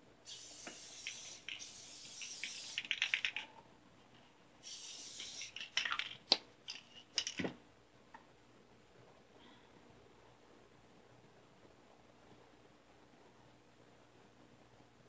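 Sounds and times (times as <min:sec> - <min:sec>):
aerosol spray hissing: 0:00.3 - 0:03.4, 0:04.6 - 0:05.8.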